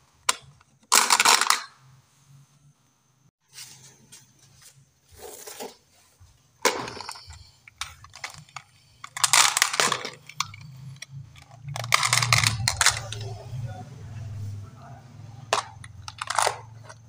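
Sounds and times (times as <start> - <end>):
marbles rattling in plastic box: 6.9 - 13.2, 15.5 - 17.0.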